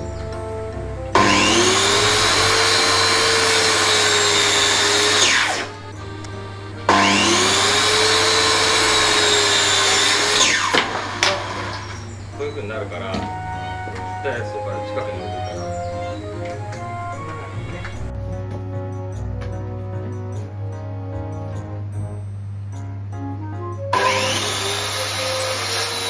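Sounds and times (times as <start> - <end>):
circular saw whining: 0.0 - 18.1, 23.9 - 26.0.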